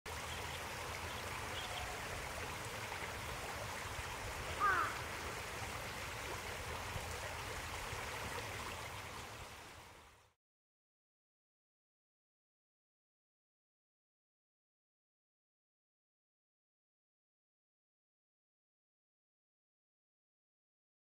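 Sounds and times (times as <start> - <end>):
stream water flowing: 0.1 - 10.4.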